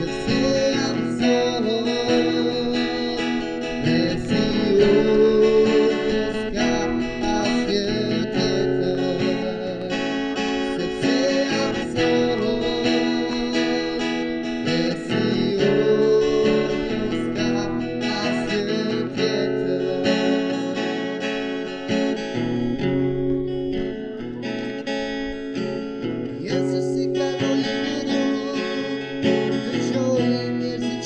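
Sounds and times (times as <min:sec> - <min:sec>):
person singing: 0:00.0 - 0:24.8, 0:26.3 - 0:31.0
acoustic guitar strumming: 0:00.0 - 0:31.0.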